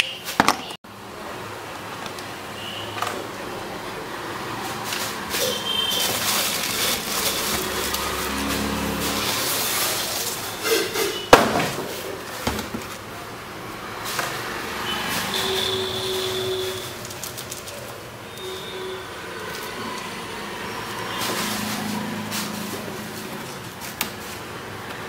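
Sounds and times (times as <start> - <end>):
cardboard rustling and scraping: 4.5 - 13.1, 20.9 - 24.7.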